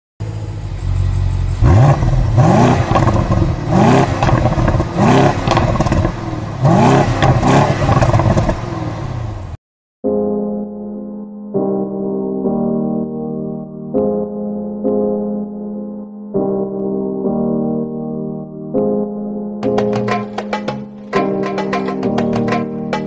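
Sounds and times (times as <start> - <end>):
car engine revving: 0.2 - 9.6
piano music: 10.0 - 23.0.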